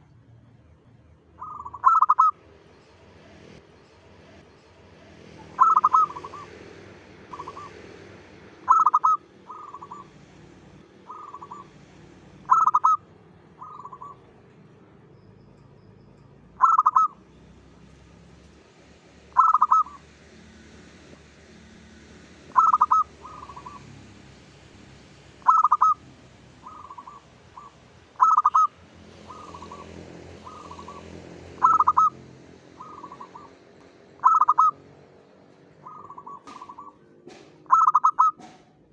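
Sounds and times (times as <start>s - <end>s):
dove cooing: 1.4s - 2.4s, 5.4s - 6.6s, 7.3s - 7.8s, 8.6s - 10.2s, 11.0s - 11.8s, 12.4s - 13.0s, 13.6s - 14.3s, 16.6s - 17.2s, 19.3s - 20.0s, 22.5s - 23.9s, 25.4s - 26.0s, 26.6s - 32.2s, 32.8s - 33.6s, 34.2s - 34.8s, 35.8s - 38.6s.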